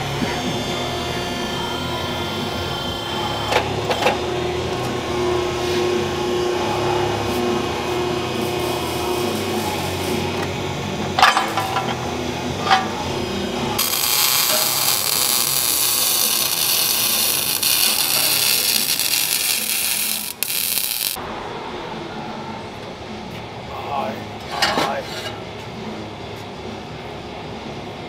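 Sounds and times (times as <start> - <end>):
pipe bender humming: 0.0 - 26.4
welding arc crackling hiss: 13.8 - 21.2.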